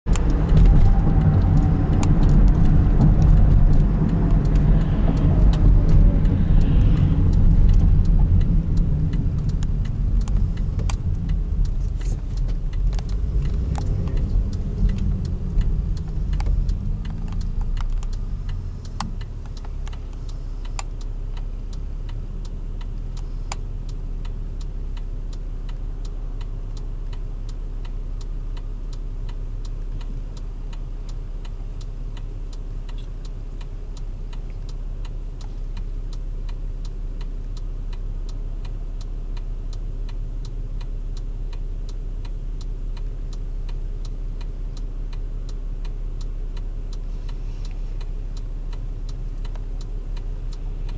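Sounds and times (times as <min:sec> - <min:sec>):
car engine and road noise: 0:00.0 - 0:50.9
falling whine: 0:00.1 - 0:17.9
light ticks: 0:00.1 - 0:50.9.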